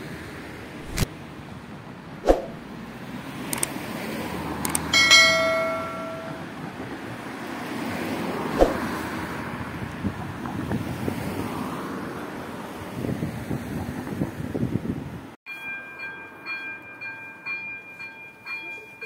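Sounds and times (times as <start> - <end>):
road traffic: 0.0 - 18.0
notification bell ding: 5.0 - 6.5.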